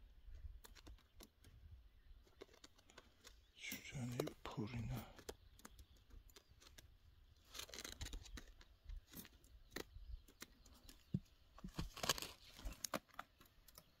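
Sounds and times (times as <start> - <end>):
rustling and crinkling handling: 0.4 - 14.0.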